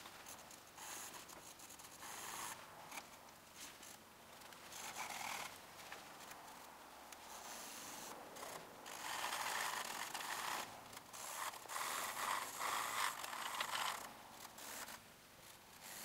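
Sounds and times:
pencil scratching on paper: 0.8s - 2.6s.

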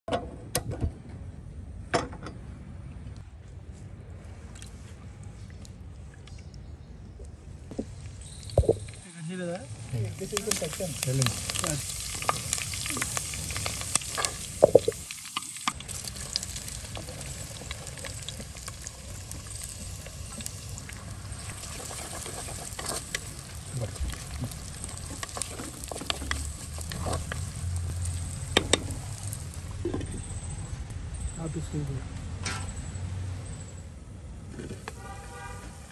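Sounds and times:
food sizzling in hot oil: 8.2s - 30.6s
wooden spatula scraping pot: 24.9s - 27.8s.

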